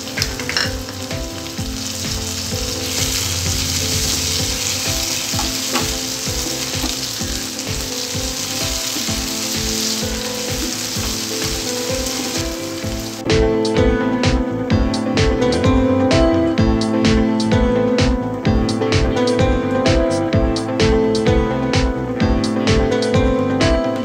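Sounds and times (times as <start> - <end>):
vegetables sizzling in hot oil: 0.0 - 13.2.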